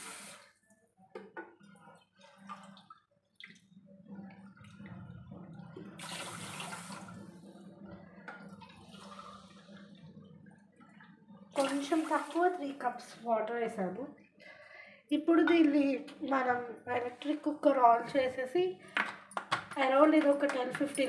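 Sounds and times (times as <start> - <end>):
water pouring into a pot: 0.0 - 0.6, 1.8 - 12.8.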